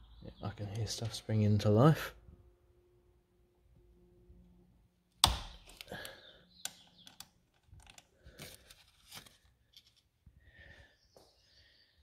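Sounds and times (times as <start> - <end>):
clicks and rustles of handling: 5.6 - 10.1.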